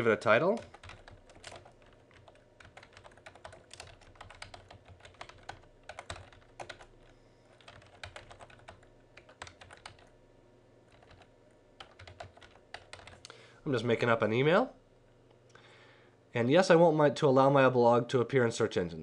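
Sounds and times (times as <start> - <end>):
computer keyboard typing: 0.0 - 10.1, 10.9 - 13.3.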